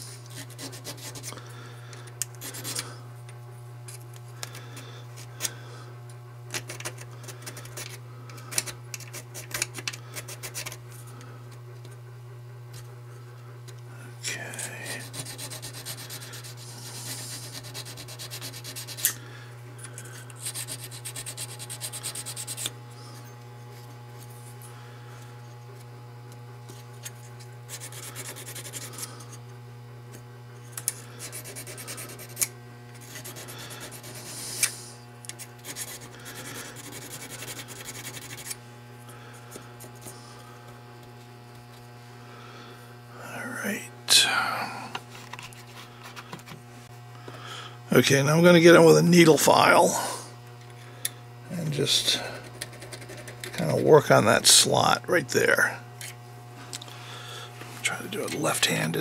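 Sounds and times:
steady low hum: 0.0 - 59.0
honing stone rubbing on steel: 14.3 - 19.2.

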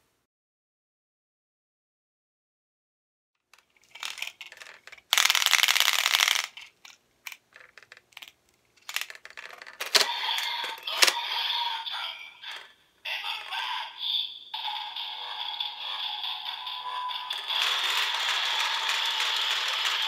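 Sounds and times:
plastic toy clicks and rattles: 3.5 - 11.2, 12.5 - 12.7, 14.6 - 20.0
toy belt electronic sound: 9.8 - 20.0.

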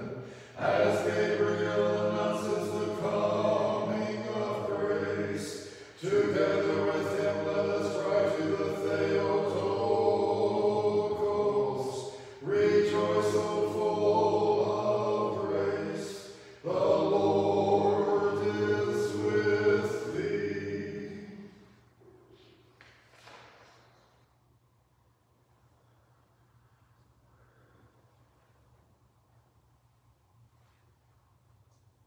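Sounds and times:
unaccompanied liturgical chant: 0.0 - 21.9.

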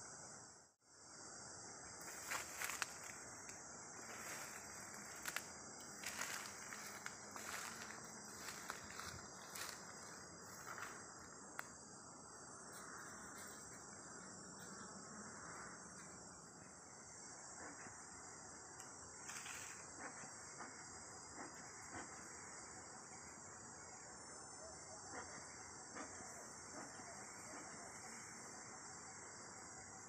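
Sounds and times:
insects trilling: 0.0 - 30.0
small ticks: 10.6 - 11.8, 18.7 - 20.7.

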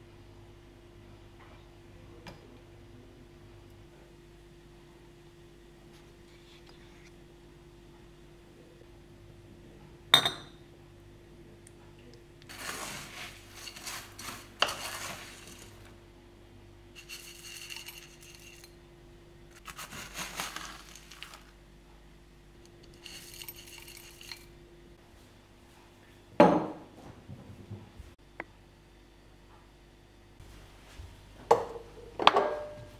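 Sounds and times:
granola rattling into bowl: 17.0 - 18.7, 19.6 - 21.5, 22.9 - 24.5
metal spoon clinking on bowl: 17.0 - 18.7, 22.8 - 24.5
bowl knocking on wooden table: 26.4 - 26.8.

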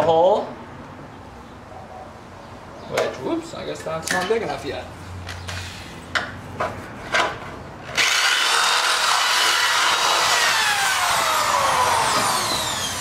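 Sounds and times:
cordless drill cutting metal: 8.0 - 13.0.

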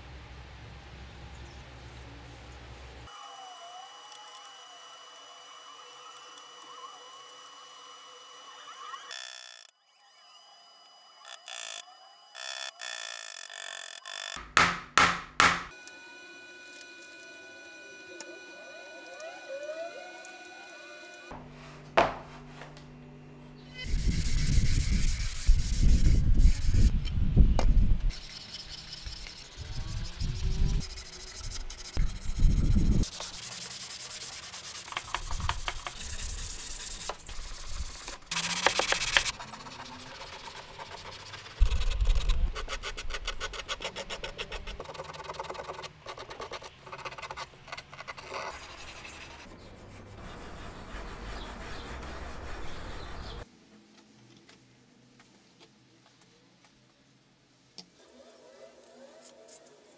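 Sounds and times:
hand sanding wood: 28.2 - 41.8, 48.2 - 53.4.

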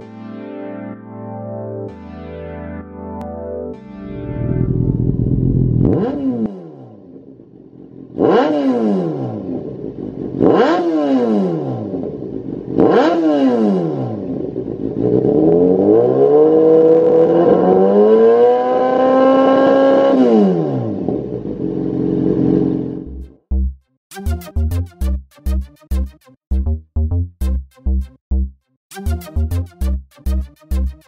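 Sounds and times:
motorcycle engine revving: 4.1 - 23.4.

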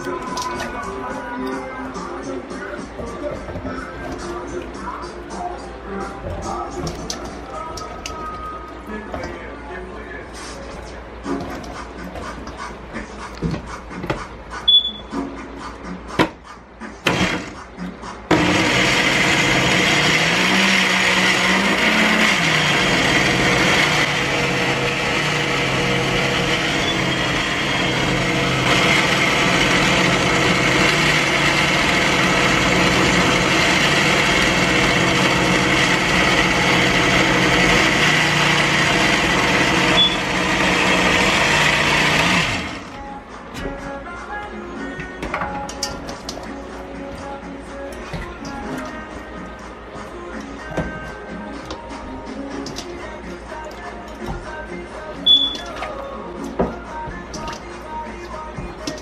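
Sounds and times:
blender motor running: 17.1 - 17.5, 18.3 - 42.9.

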